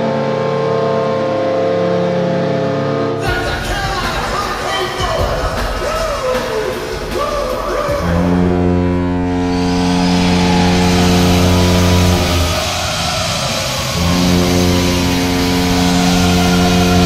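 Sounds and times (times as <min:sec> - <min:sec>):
low goal horn blasts: 0:00.0 - 0:03.5, 0:08.0 - 0:17.0.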